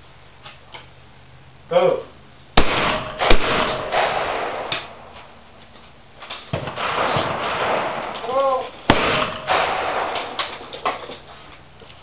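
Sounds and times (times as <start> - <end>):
shotgun shots: 2.6 - 5.2, 6.5 - 10.6.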